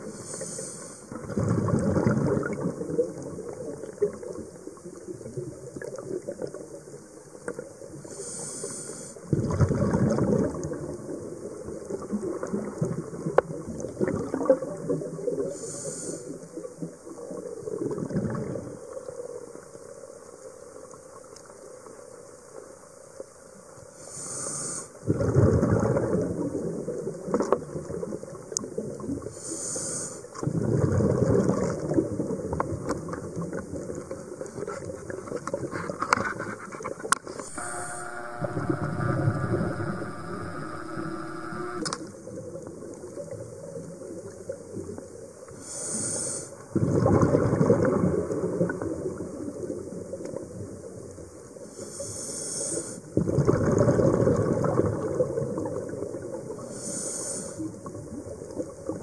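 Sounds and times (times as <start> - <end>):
regulator inhale hiss underwater: 0.0 - 1.3, 8.0 - 9.3, 15.4 - 16.6, 23.9 - 25.0, 29.2 - 30.4, 45.5 - 46.6, 51.6 - 53.1, 56.6 - 57.8
gurgling rush of exhaled bubbles: 1.1 - 4.5, 9.3 - 15.5, 17.6 - 18.8, 25.0 - 28.1, 30.4 - 35.2, 46.7 - 49.6, 53.2 - 56.6.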